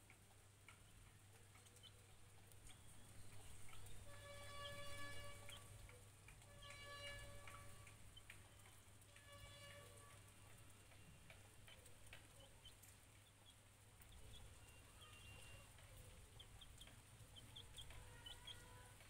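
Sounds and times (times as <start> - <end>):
chick peeping: 1.4 - 6.0, 10.5 - 19.0.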